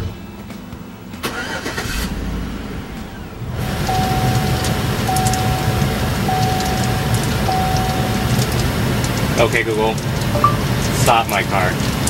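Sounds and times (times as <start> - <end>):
car engine starting and running: 1.1 - 11.2
dashboard chime beeping: 3.9 - 8.6, 10.4 - 10.9.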